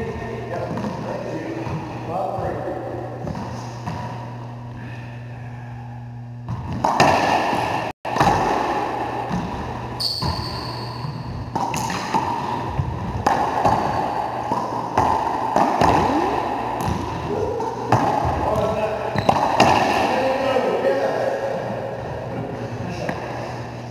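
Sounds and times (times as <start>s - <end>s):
ball smacking off racquets and walls: 6.5s - 10.4s, 11.5s - 16.2s, 17.9s - 20.1s.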